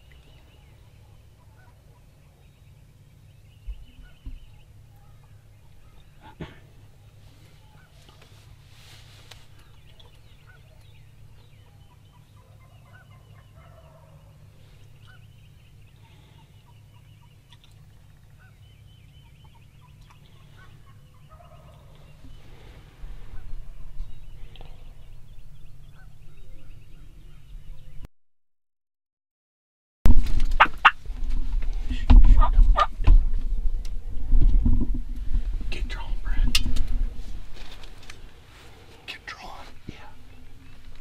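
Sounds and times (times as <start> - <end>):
turkeys gobbling: 0.7 - 2.4, 9.9 - 15.3, 19.2 - 25.1, 30.6 - 31.0, 32.2 - 33.0
low rumble: 14.1 - 28.1, 30.1 - 41.0.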